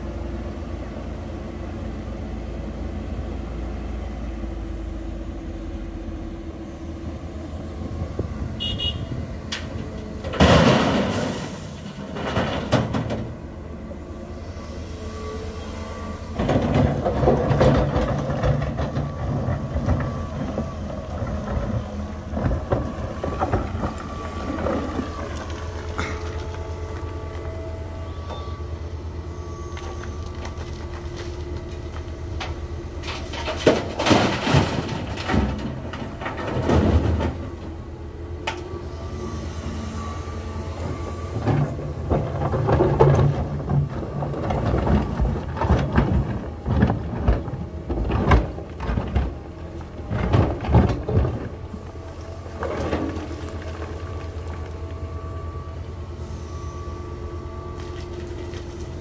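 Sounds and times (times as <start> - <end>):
excavator diesel engine running: 0.0 - 59.0
stones tumbling: 16.4 - 27.5, 41.4 - 51.8, 52.4 - 55.0.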